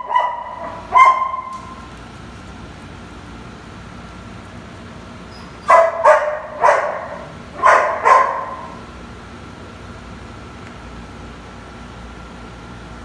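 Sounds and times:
dog barking: 0.0 - 1.8, 5.6 - 8.8.

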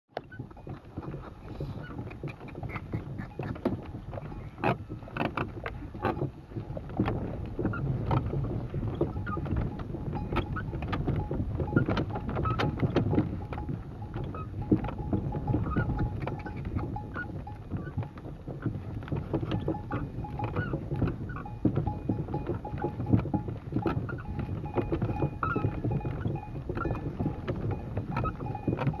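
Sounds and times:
wind rumble on microphone: 0.1 - 29.0
wooden saddle creaking: 0.1 - 29.0.

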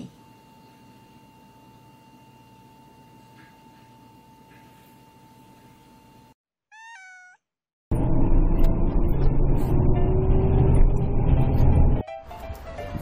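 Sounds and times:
high meow-like call: 6.7 - 7.4
car road and engine rumble: 7.9 - 12.0.

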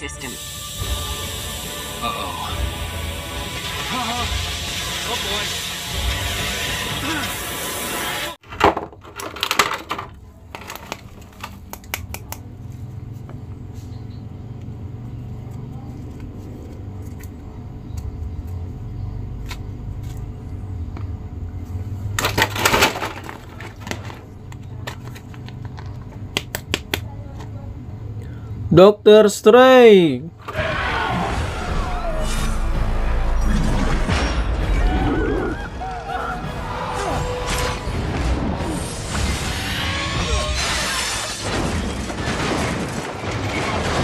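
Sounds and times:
plastic clicks and crinkles: 9.0 - 12.2
steady low hum: 12.4 - 22.2
plastic rustling: 22.2 - 26.2.

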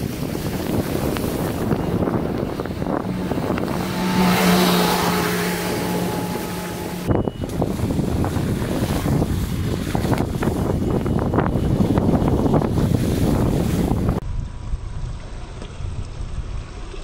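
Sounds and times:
tyre and wind noise: 0.0 - 17.0
engine drone: 0.1 - 12.0.

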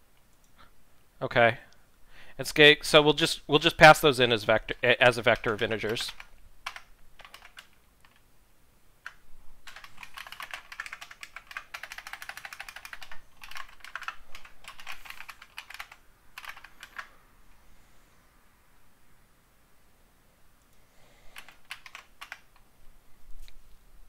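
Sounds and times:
typing on computer keyboard: 5.0 - 8.2, 9.0 - 17.1, 21.4 - 22.6.

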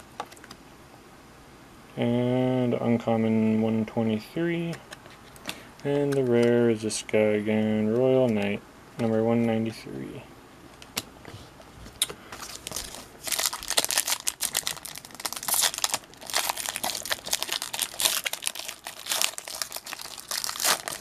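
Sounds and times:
wrapper crinkling: 12.4 - 21.0.

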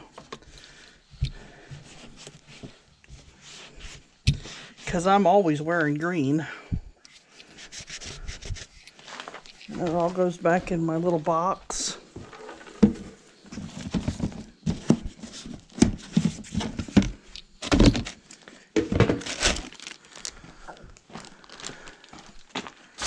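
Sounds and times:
crinkling of paper towel: 7.6 - 11.2, 17.7 - 23.0
plastic knocks and clatters: 12.1 - 18.2, 18.8 - 19.6.

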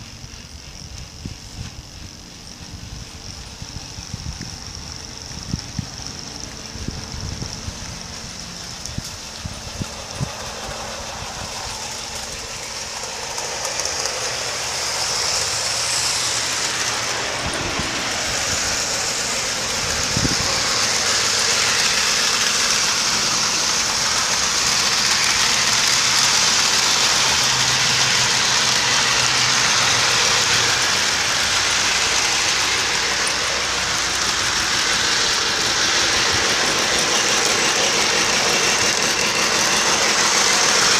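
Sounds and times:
model railway running noise: 0.0 - 40.9
strong hiss: 0.0 - 40.9.

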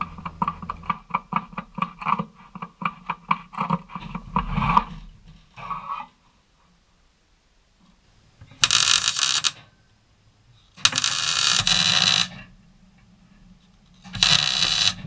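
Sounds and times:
welder arc crackling: 8.5 - 9.7, 10.8 - 12.4, 14.0 - 15.0.

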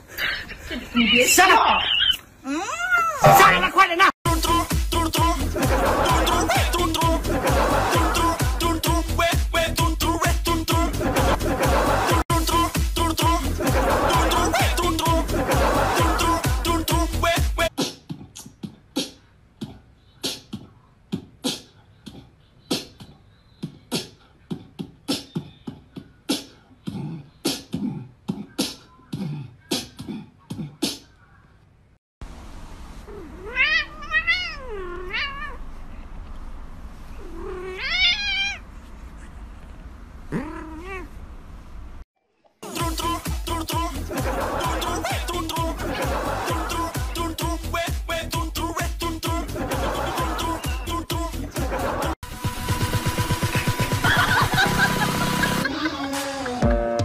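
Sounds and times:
cat meowing: 33.1 - 35.6, 37.2 - 38.6.

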